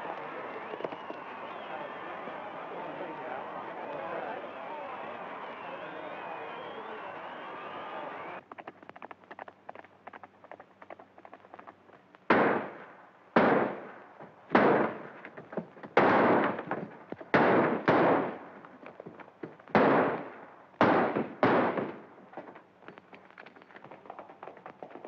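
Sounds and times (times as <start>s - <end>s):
faint rapid hoofbeats: 0.0s - 12.8s, 14.2s - 25.0s
gunshots with ringing echo: 12.3s - 15.1s, 16.0s - 16.7s, 17.3s - 18.5s, 19.7s - 22.1s.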